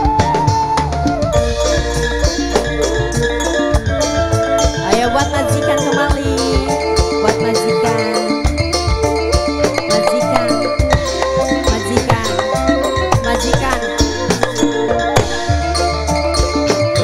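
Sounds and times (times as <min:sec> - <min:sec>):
drums: 0:00.0 - 0:17.0
flute melody: 0:00.0 - 0:17.0
rattling percussion: 0:00.0 - 0:17.0.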